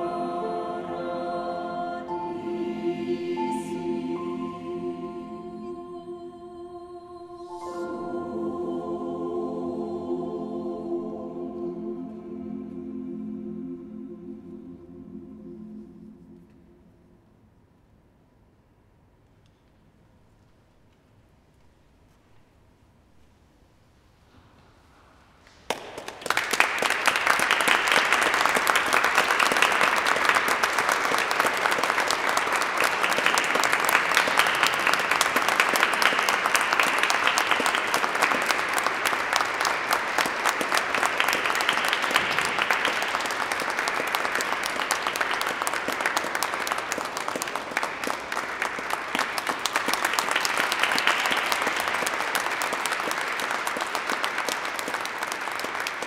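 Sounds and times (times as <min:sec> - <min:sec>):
audience applause: 0:25.7 - 0:56.0.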